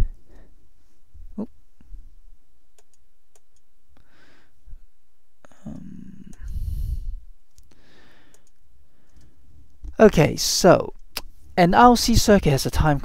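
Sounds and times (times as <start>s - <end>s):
computer mouse clicks: 2.8s - 3.6s, 8.3s - 9.3s
low muffled noise: 4.5s - 7.5s.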